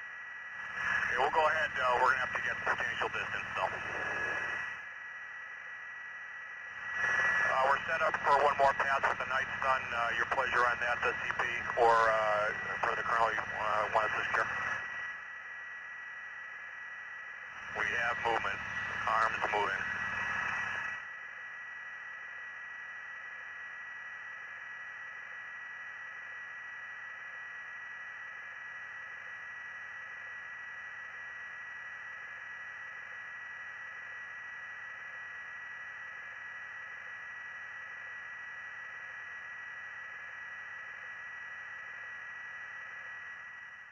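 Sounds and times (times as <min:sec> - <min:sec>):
radio channel hiss: 0:00.0 - 0:05.7, 0:06.4 - 0:15.3, 0:16.6 - 0:21.4.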